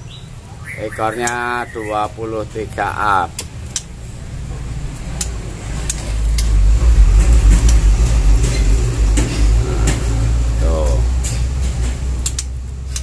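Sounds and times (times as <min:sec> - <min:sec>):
low fluctuating rumble: 0:04.0 - 0:12.9.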